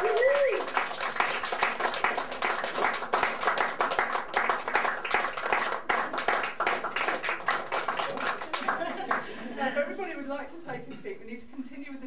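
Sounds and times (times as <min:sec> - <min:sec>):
many hands clapping: 0:00.0 - 0:09.4.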